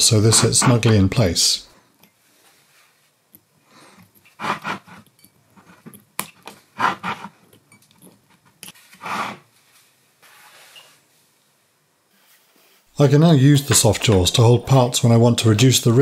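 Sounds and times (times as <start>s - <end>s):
pliers scraping on metal: 7.5s - 8.8s.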